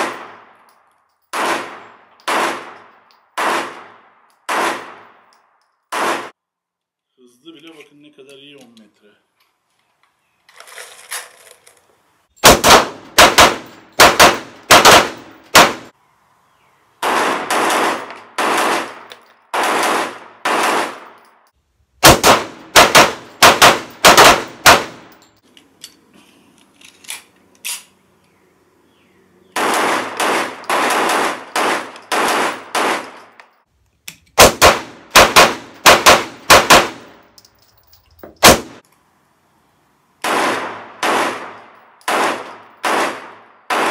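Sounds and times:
pistol shots: 0:01.3 - 0:05.2, 0:05.9 - 0:06.3, 0:12.4 - 0:15.9, 0:17.0 - 0:21.2, 0:22.0 - 0:25.1, 0:29.6 - 0:33.3, 0:34.4 - 0:37.2, 0:38.4 - 0:38.8, 0:40.2 - 0:43.9.

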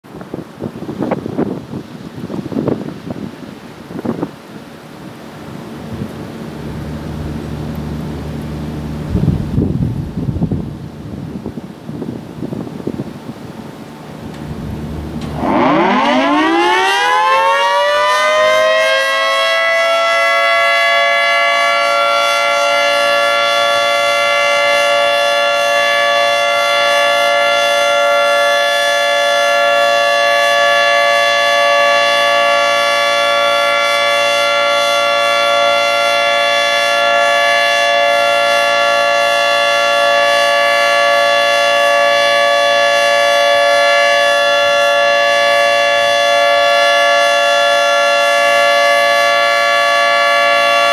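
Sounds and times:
three-tone warning siren: 0:14.1 - 0:50.9.

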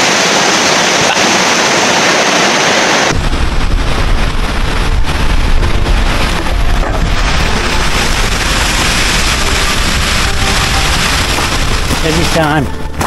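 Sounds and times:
waterfall rushing: 0:00.0 - 0:13.0
wind buffeting microphone: 0:03.1 - 0:13.0.

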